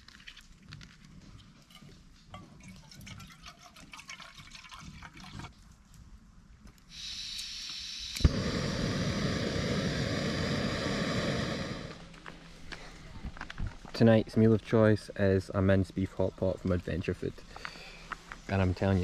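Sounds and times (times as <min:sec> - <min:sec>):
gas burner rushing: 0:06.9 - 0:12.8
gas hissing: 0:06.9 - 0:13.5.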